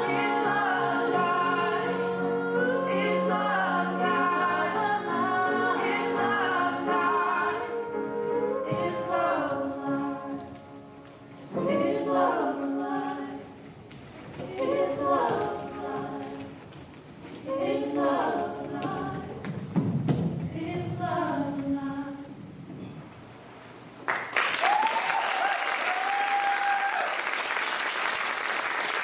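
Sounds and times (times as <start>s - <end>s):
choir singing held chords: 0.0s - 16.6s, 17.4s - 19.6s, 20.5s - 22.4s
audience applause: 24.0s - 29.0s
audience cheering: 24.4s - 29.0s.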